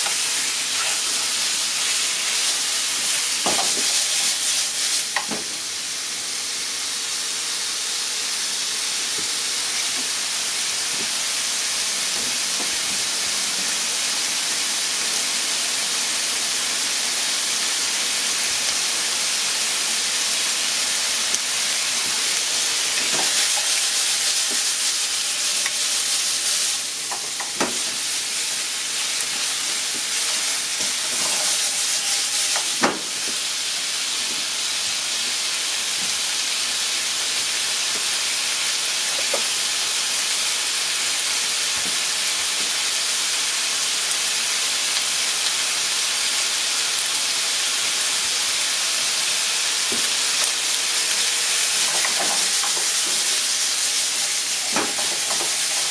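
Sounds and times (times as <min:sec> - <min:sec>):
chicken sizzling in frying pan: 0:00.0 - 0:55.9.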